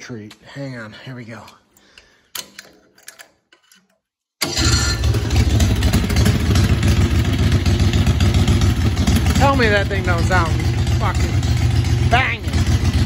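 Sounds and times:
engine running with pulsing exhaust: 5.0s - 13.0s.

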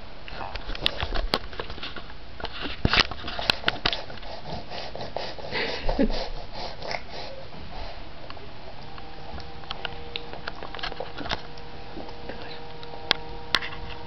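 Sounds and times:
baby breathing: 3.4s - 8.5s.

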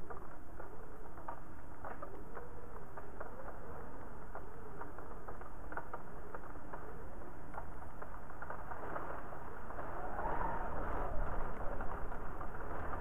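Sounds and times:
faint wind whistle: 9.8s - 13.0s.

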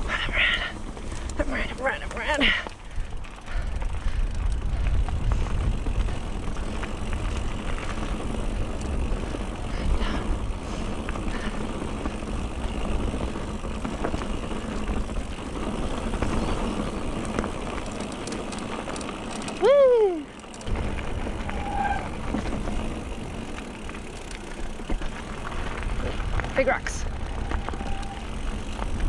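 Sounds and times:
bike clicks and rattles: 0.0s - 29.0s
tyres rolling over gravel: 0.0s - 29.0s
wind on microphone: 2.8s - 10.6s.

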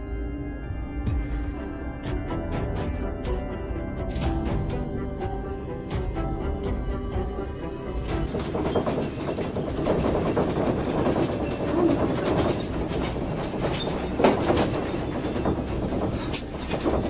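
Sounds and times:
windows and objects rattling: 4.1s - 17.0s
earthquake rumble: 8.0s - 17.0s.

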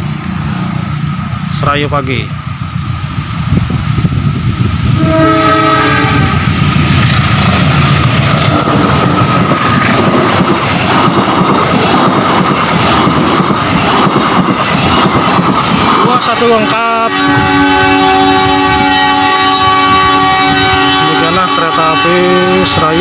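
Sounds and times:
locomotive horn blast: 5.0s - 6.5s, 8.5s - 9.2s, 16.5s - 23.0s.

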